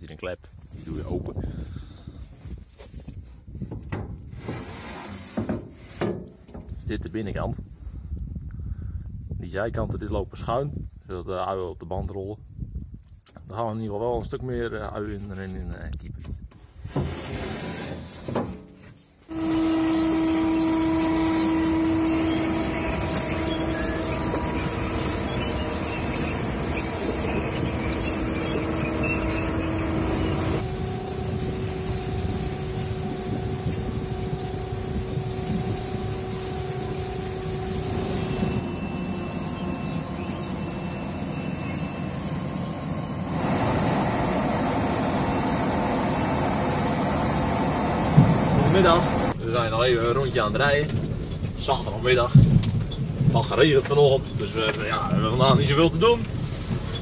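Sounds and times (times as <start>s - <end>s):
machinery mechanical din: 19.3s - 49.4s.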